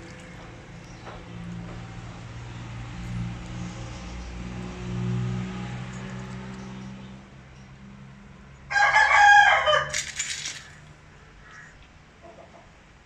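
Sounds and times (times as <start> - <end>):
rooster crowing: 8.7 - 10.2.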